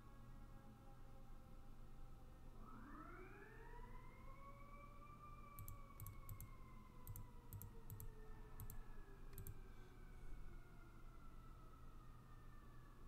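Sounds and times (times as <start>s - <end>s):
faint wailing tone: 4.9s - 12.0s
computer mouse clicking: 5.6s - 9.7s.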